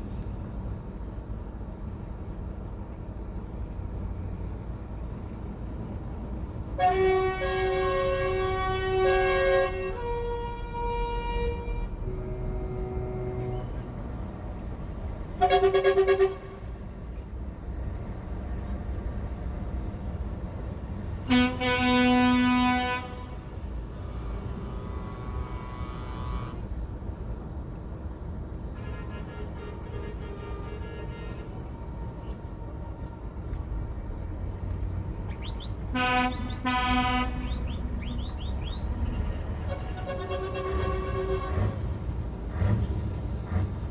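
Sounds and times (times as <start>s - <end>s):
low engine rumble: 0.0s - 43.9s
short horn blasts: 6.8s - 13.9s, 15.4s - 16.7s, 21.3s - 23.4s, 24.0s - 26.7s, 35.9s - 37.8s, 39.6s - 41.8s
truck air horns: 6.8s - 14.4s, 15.4s - 16.8s, 21.2s - 26.7s, 28.7s - 32.4s, 35.4s - 41.9s.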